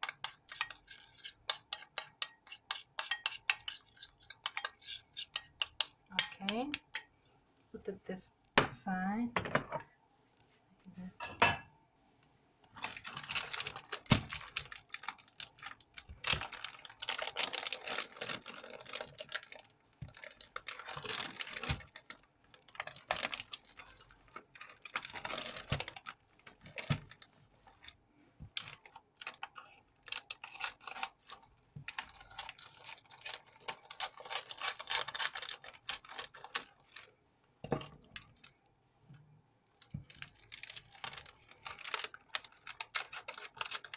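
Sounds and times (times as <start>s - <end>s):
plastic packet crinkling: 12.8s - 28.0s, 28.6s - 37.1s, 39.8s - 43.9s.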